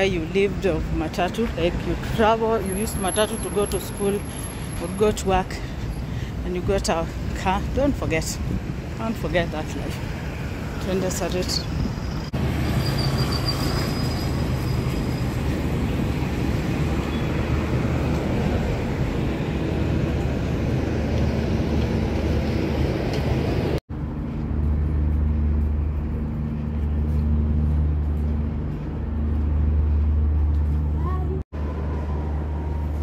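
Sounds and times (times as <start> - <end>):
cars passing: 0.0 - 33.0
steady low drone: 17.6 - 31.0.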